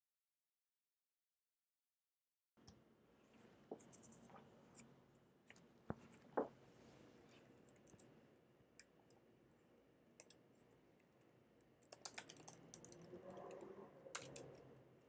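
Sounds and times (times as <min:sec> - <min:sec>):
typing on computer keyboard: 0:11.8 - 0:14.8.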